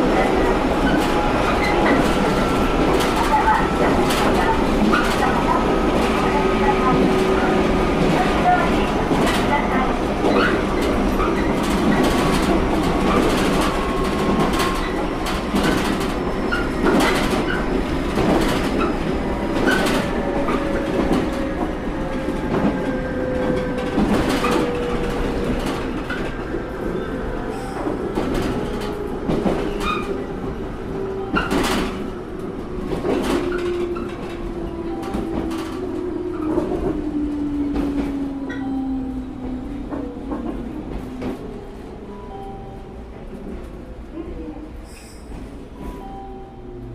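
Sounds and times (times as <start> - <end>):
low train rumble: 0.0 - 46.9.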